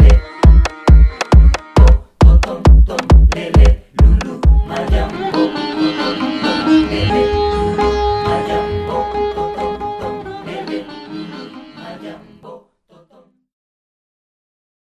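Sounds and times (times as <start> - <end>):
heavy beat: 0.0 - 7.9
plucked-string melody: 4.6 - 12.0.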